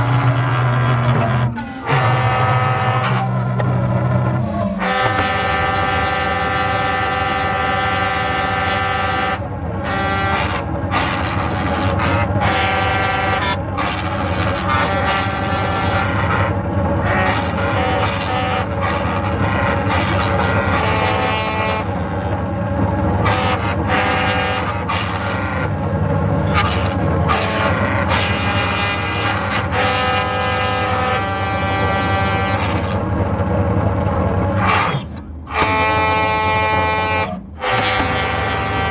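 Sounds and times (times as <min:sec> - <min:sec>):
calliope whistle pipes chords: 0:00.0 - 0:08.0
calliope pipes playing chords: 0:00.0 - 0:33.0, 0:35.5 - 0:38.9
steady low rumble: 0:00.0 - 0:38.9.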